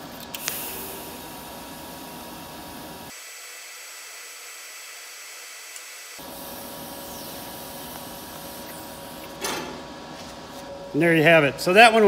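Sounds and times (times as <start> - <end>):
welding arc hissing: 0.3 - 9.4.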